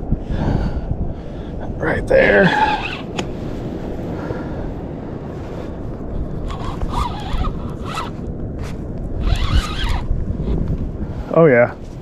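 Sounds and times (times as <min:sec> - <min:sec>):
wind: 0:00.0 - 0:12.0
fishing reel winding: 0:06.4 - 0:08.2, 0:09.2 - 0:10.1.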